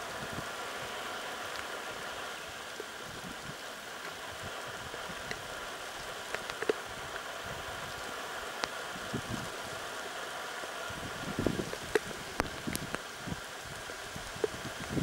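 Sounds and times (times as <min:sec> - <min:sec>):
rain falling on bushes: 0:00.0 - 0:15.0
water drips ticking: 0:06.2 - 0:07.3, 0:11.6 - 0:13.1, 0:14.2 - 0:15.0.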